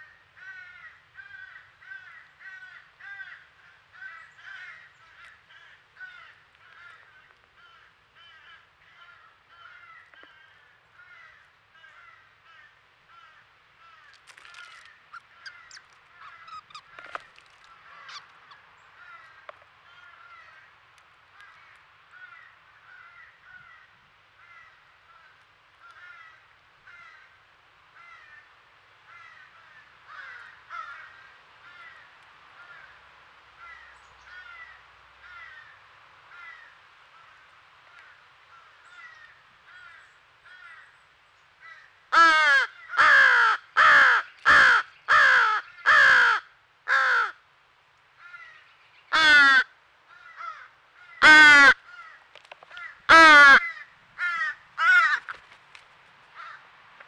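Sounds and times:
crow cawing harshly: 0.4s - 17.2s, 17.8s - 20.7s, 21.4s - 27.3s, 29.1s - 32.0s, 41.6s - 47.4s, 48.2s - 55.4s, 56.4s - 56.7s
young crow begging cries: 0.4s - 20.7s, 41.6s - 47.4s, 48.2s - 55.4s.

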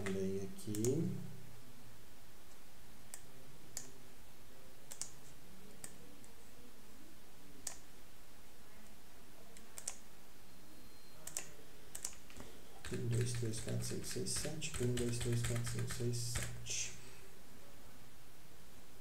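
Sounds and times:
computer mouse clicking: 2.5s - 4.0s, 4.9s - 6.4s, 7.6s - 7.9s, 9.6s - 10.1s, 11.2s - 16.6s.

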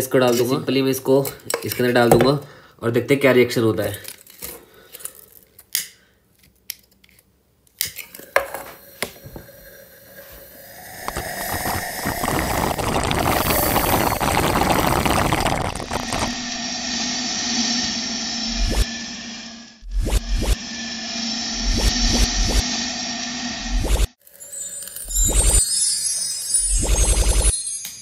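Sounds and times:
smoke bomb hissing and crackling: 9.0s - 18.8s.

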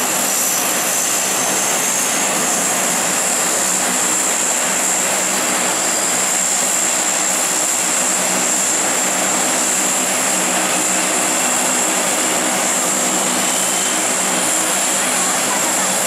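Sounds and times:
propeller drone: 0.0s - 16.0s
turbine whine: 0.0s - 16.0s.

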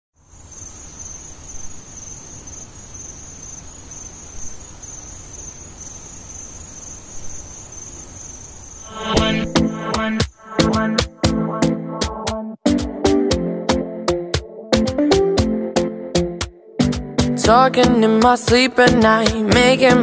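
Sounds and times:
insect trill: 0.2s - 10.4s
pop song with heavy beat: 8.9s - 15.6s, 16.2s - 20.0s.

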